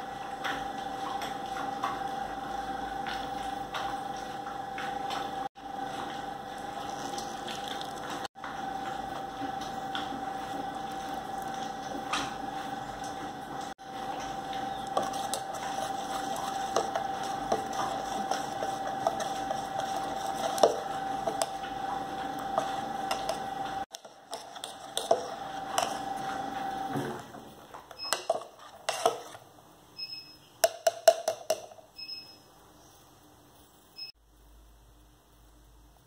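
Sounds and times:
steady hum: 0:01.0 - 0:27.2
spoon stirring batter in bowl: 0:06.0 - 0:26.8, 0:27.8 - 0:29.4, 0:30.0 - 0:31.9.

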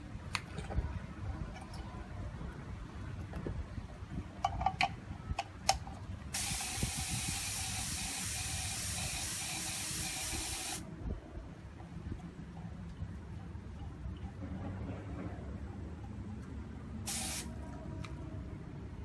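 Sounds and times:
paint spray hissing: 0:06.4 - 0:10.8, 0:17.1 - 0:17.5.

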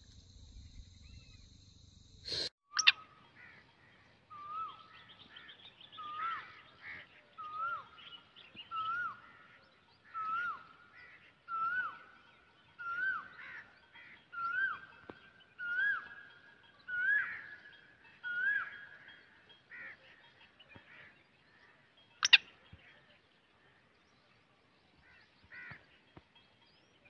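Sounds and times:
faint bird chirps: 0:00.0 - 0:27.0
bird calling: 0:02.2 - 0:21.2, 0:22.0 - 0:23.0.

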